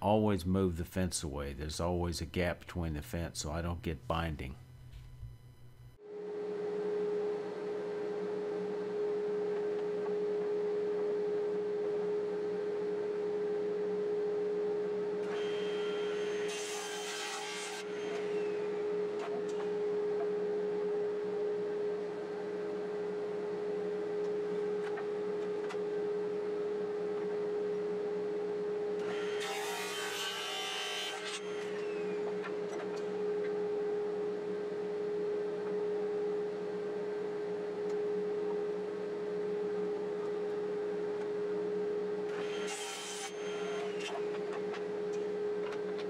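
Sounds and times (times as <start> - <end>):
saw blade cutting wood: 15.2 - 18.7, 29.0 - 32.3, 42.3 - 44.3
table saw whining: 15.2 - 20.3, 29.0 - 33.5, 42.3 - 45.3.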